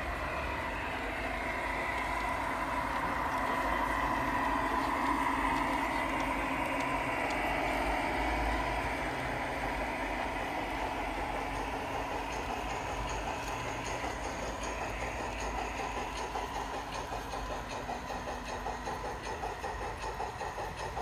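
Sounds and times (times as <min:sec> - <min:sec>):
diesel engine drone: 0:00.0 - 0:21.0
wheels clicking over rail joints: 0:00.0 - 0:21.0.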